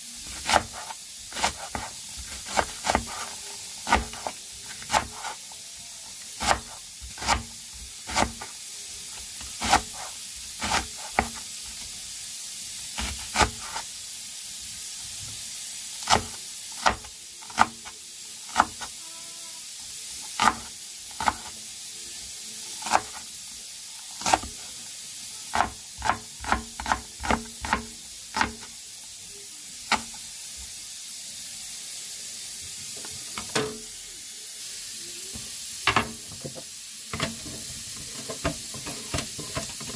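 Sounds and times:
steady hiss: 0:00.0 - 0:39.9
knife chopping on wooden board: 0:00.4 - 0:03.3, 0:06.4 - 0:07.5, 0:09.6 - 0:11.4, 0:25.5 - 0:28.6.

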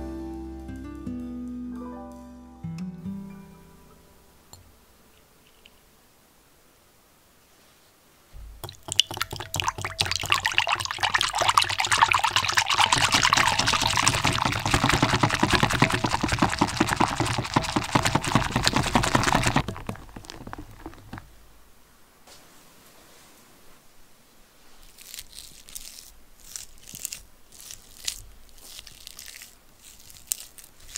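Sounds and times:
whisk beating cream in glass bowl: 0:08.8 - 0:21.2.

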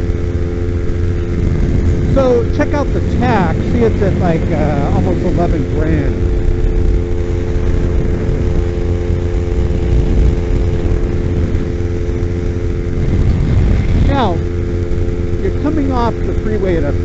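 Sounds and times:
motorcycle engine at high revs: 0:00.0 - 0:17.0
wind rumble on microphone: 0:00.0 - 0:17.0.

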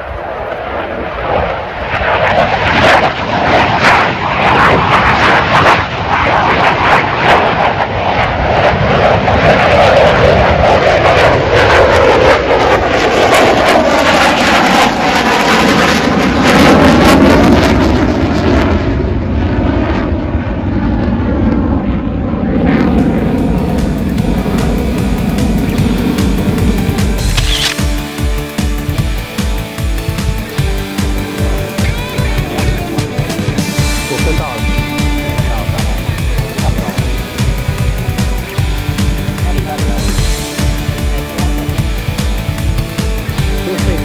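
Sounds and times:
jet flying past with crackling roar: 0:00.0 - 0:28.2.

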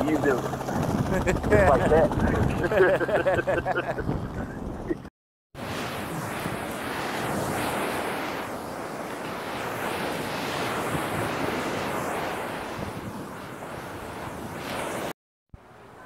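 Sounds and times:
wind buffeting microphone: 0:00.0 - 0:15.1
surf breaking on beach: 0:05.6 - 0:15.1.

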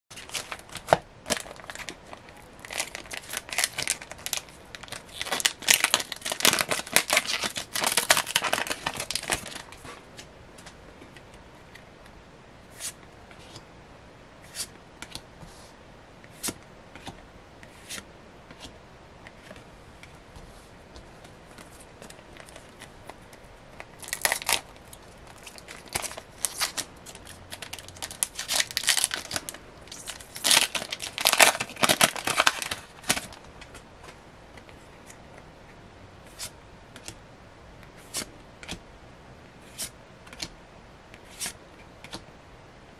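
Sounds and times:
foil wrapper crinkling and tearing: 0:00.1 - 0:09.8, 0:23.8 - 0:33.4.

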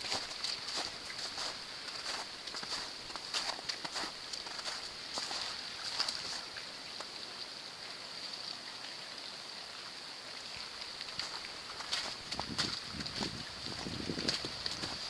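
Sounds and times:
footsteps crunching in snow: 0:00.0 - 0:06.5, 0:11.1 - 0:15.0
river water rushing under ice: 0:00.0 - 0:15.0.

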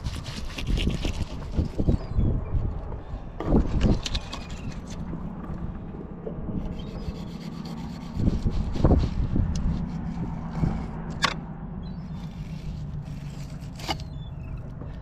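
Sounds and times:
knife rasping through fish scales: 0:00.0 - 0:01.5, 0:06.8 - 0:11.0, 0:12.1 - 0:14.1.

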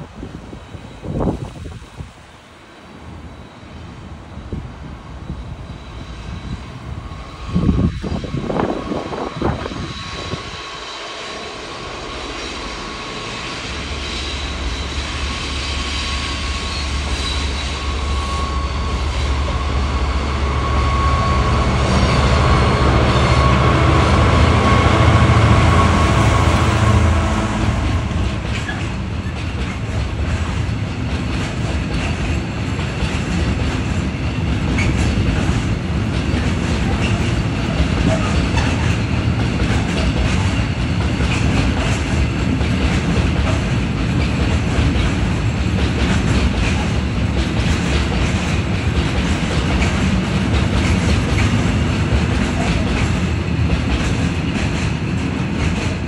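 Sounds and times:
wind buffeting microphone: 0:00.0 - 0:02.2, 0:04.2 - 0:10.7
diesel locomotive engine drone: 0:00.0 - 0:56.0.

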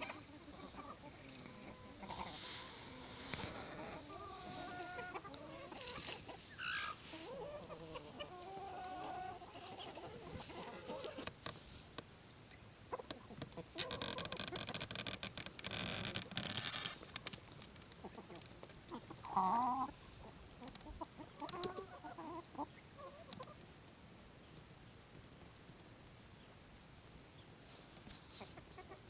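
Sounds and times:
hens clucking: 0:00.0 - 0:11.6, 0:12.8 - 0:14.8, 0:16.2 - 0:23.7, 0:28.0 - 0:29.0
loud wavering hen call: 0:01.5 - 0:11.1.

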